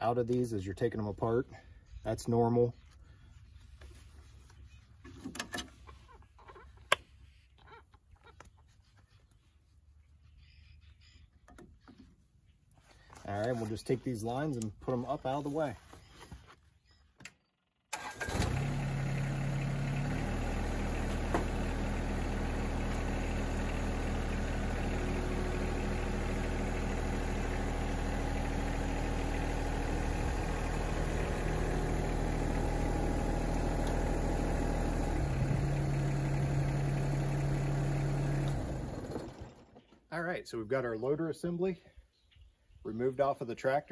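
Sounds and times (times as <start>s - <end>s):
diesel tractor engine running: 17.9s - 39.9s.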